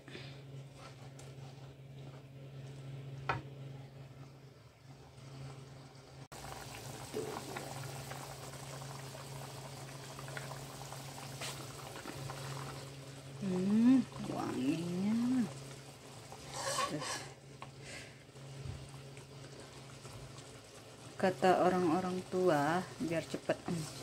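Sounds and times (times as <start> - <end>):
low hum: 0.0 - 24.0
curry bubbling and spitting: 6.4 - 17.0
spatula stirring: 16.4 - 17.4.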